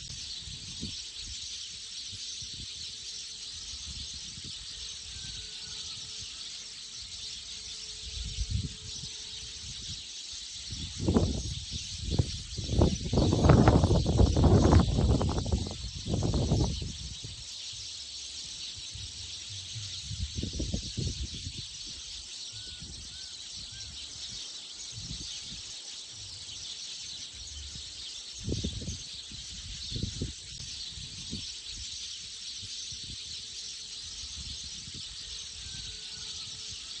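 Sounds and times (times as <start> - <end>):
high-pitched insect chorus: 0.0 - 37.0.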